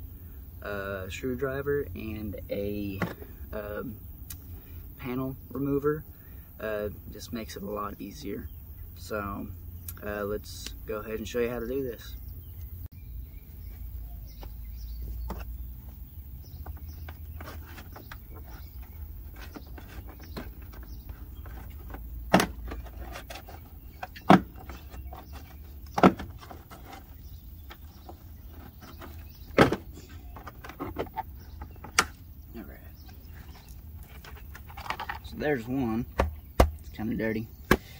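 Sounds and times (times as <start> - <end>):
rustling: 13.4 - 32.2.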